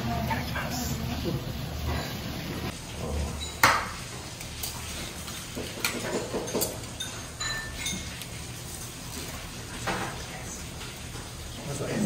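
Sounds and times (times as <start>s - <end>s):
dishes and utensils clinking: 1.8s - 11.3s.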